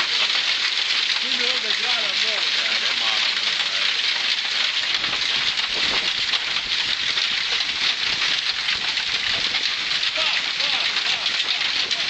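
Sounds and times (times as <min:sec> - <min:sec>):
heavy rain pelting down: 0:00.0 - 0:12.0.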